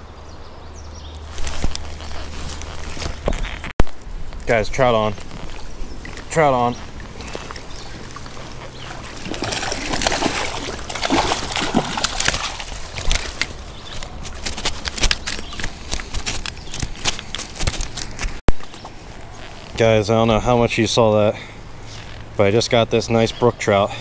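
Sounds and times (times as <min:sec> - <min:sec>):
creek water splashing: 0:01.1 - 0:22.4
fish thrashing splashes: 0:05.7 - 0:18.1.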